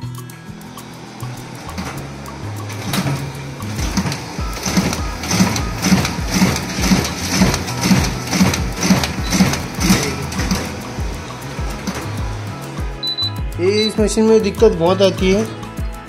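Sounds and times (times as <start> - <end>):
duplicator printing rhythmic clack: 0.6 - 13.4.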